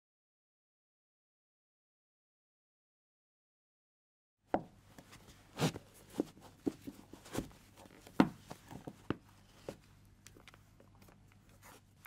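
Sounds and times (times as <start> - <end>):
faint low hum: 4.6 - 12.0.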